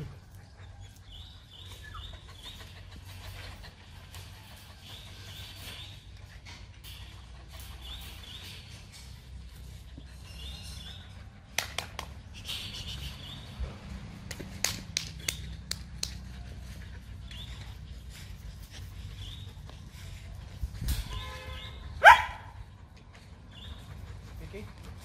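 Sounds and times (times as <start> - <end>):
puppies whining and yelping: 0.2 - 11.4.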